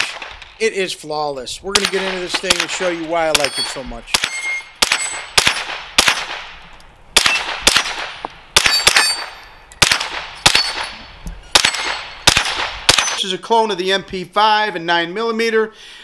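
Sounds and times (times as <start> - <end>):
gunshots: 0.0 - 0.7, 1.7 - 6.6, 7.2 - 13.2
steel target plate ringing: 3.4 - 5.3, 8.6 - 9.6, 10.4 - 11.0.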